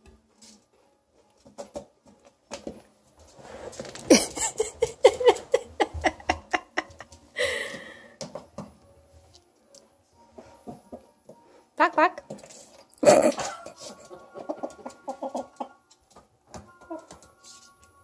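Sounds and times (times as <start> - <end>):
short laughs: 4.1 - 7.0.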